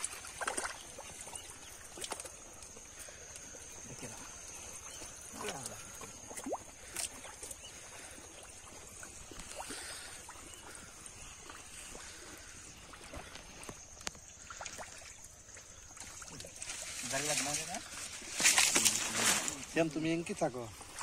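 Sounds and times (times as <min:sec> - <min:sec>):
hands sloshing in muddy water: 0:00.0 - 0:19.8.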